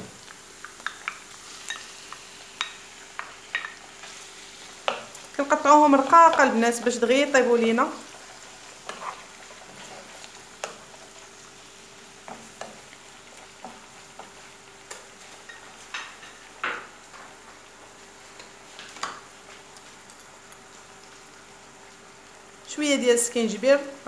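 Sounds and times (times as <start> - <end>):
food sizzling in a frying pan: 0.0 - 24.0
wooden spoon scraping a pan: 8.0 - 11.2.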